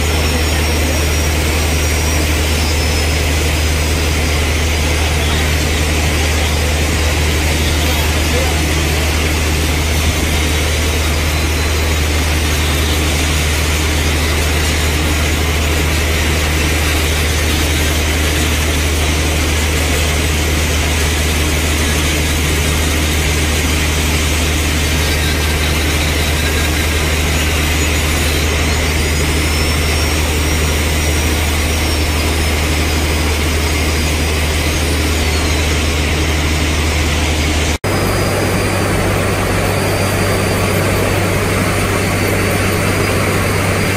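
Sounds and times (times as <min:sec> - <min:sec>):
grinder hissing: 0:00.0 - 0:43.9
low hum: 0:23.4 - 0:43.9.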